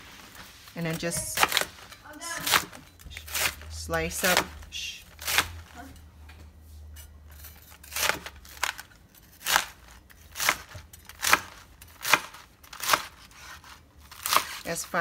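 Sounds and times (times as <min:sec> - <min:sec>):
knife slicing cabbage on board: 0:07.4 - 0:14.7.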